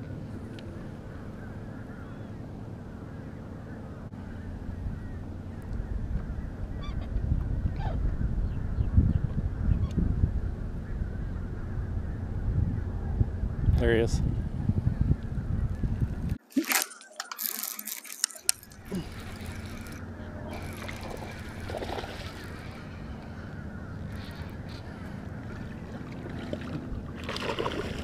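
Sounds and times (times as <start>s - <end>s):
steady low hum: 0.0s - 16.5s, 17.9s - 28.0s
wind rumbling on microphone: 4.2s - 16.4s.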